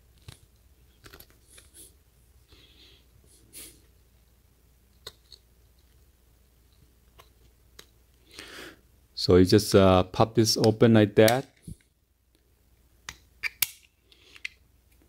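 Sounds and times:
plastic pouch clicking and rustling: 0.1s - 1.8s.

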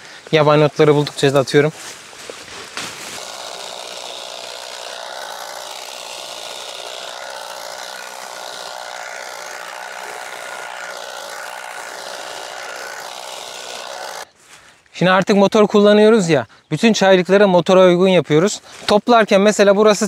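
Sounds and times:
harvesting machine whine: 3.0s - 14.3s.

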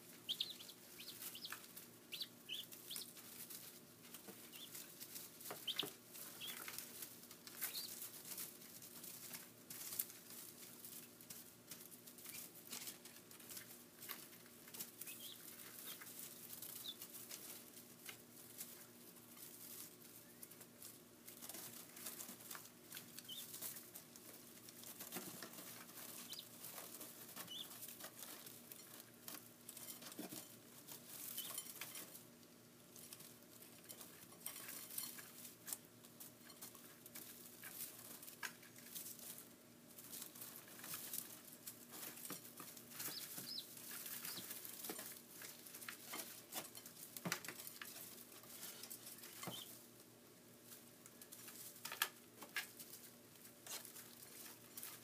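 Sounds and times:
chicks peeping: 0.0s - 32.1s, 40.0s - 46.7s, 47.8s - 50.0s
chicks scratching in straw: 0.0s - 55.0s.

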